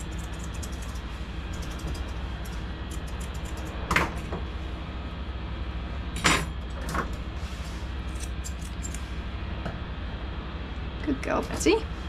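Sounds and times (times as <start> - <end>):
grooming scissors snipping: 0.0 - 3.8
steady low hum: 0.0 - 12.0.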